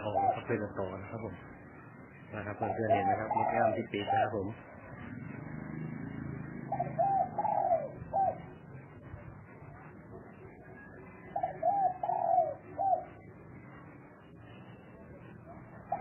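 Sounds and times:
dove cooing: 0.0s - 10.0s, 10.6s - 13.8s, 15.5s - 16.0s.

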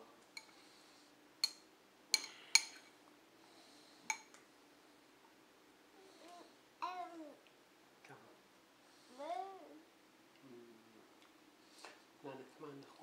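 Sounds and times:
metal spoon clinking on ceramic bowl: 1.4s - 1.6s, 2.2s - 2.9s.

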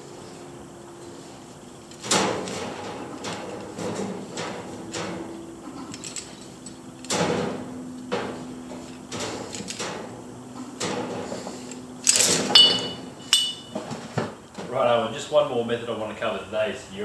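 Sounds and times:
metal clinks and ringing: 5.9s - 6.8s, 12.0s - 13.8s.

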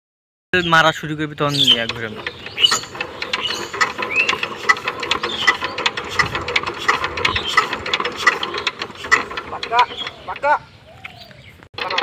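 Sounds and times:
engine cranking ratcheting clatter: 1.4s - 10.6s, 11.8s - 12.0s.

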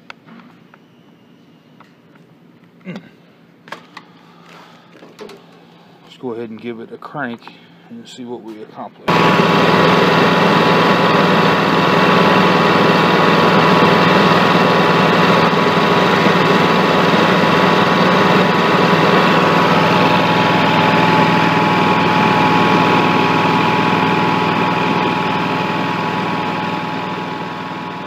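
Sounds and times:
small engine running: 9.1s - 28.0s.

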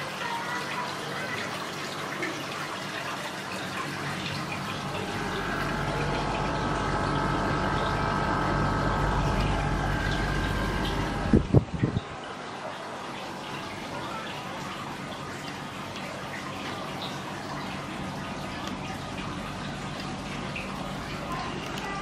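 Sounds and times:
compressor hum: 3.8s - 12.2s
air conditioner fan whoosh: 4.2s - 12.2s
steady whine: 4.8s - 11.5s.

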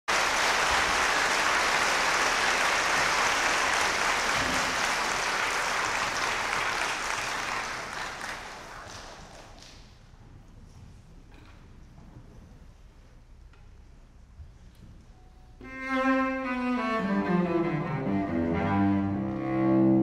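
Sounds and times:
audience applauding: 0.1s - 9.9s.

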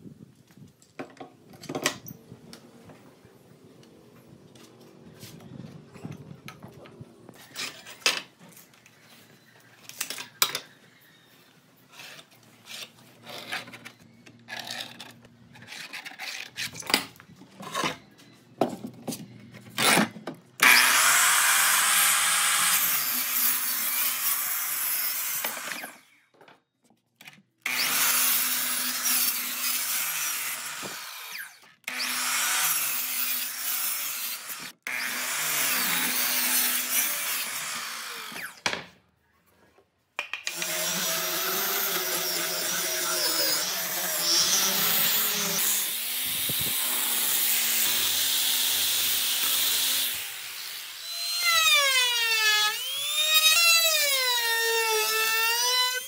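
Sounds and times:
miter saw cutting wood: 20.6s - 26.1s, 27.7s - 38.6s, 40.5s - 56.0s.

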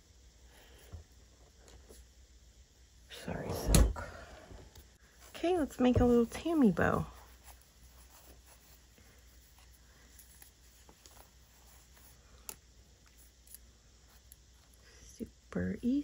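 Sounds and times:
ribbon rustling: 5.0s - 15.0s.

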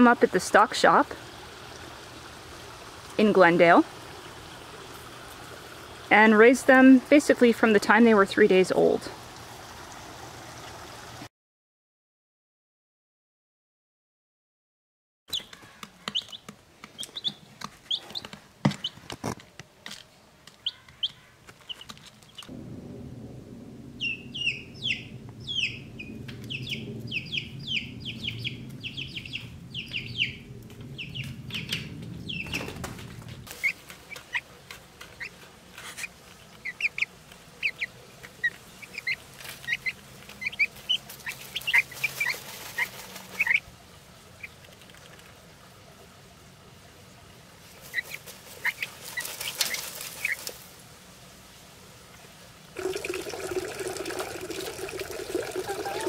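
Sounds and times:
chicks peeping: 15.3s - 19.0s, 20.6s - 22.5s, 24.0s - 25.8s, 26.4s - 30.4s, 35.1s - 43.6s, 47.9s - 50.5s
low steady hum: 22.4s - 41.6s.

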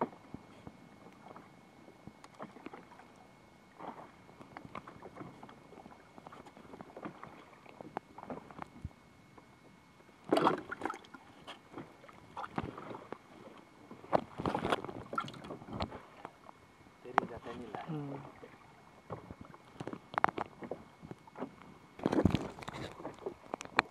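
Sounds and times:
water splashing and sloshing: 0.0s - 23.9s.

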